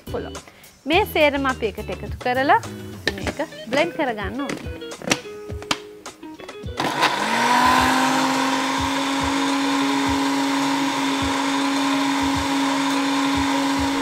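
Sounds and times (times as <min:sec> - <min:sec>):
electric blender grinding: 0:06.7 - 0:14.0.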